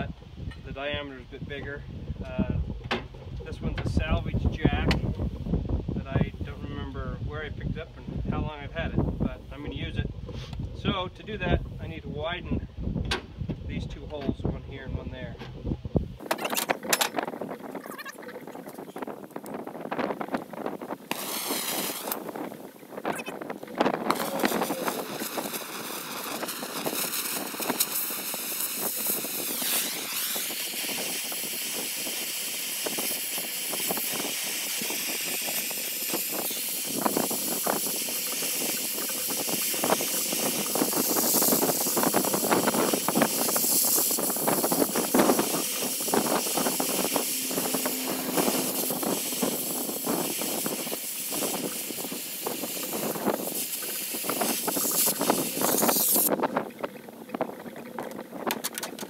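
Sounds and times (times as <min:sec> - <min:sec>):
molten steel crackling and popping: 0:09.0 - 0:59.0
blow torch flame hissing: 0:19.9 - 0:56.3.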